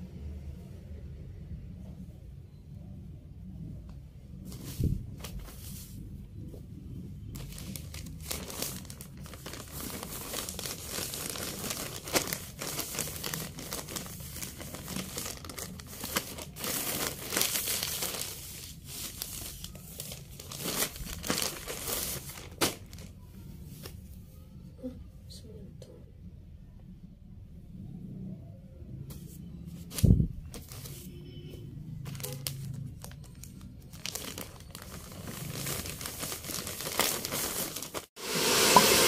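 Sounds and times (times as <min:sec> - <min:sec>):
plastic bags crinkling: 0:07.4 - 0:23.2, 0:32.1 - 0:38.1.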